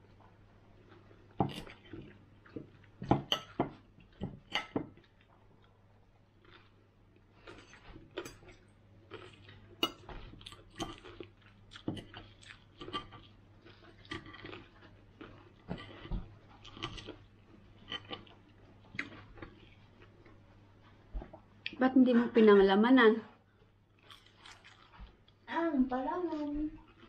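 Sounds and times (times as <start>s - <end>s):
chewing and mouth sounds: 6.4s - 21.8s, 24.0s - 25.4s, 26.8s - 27.0s.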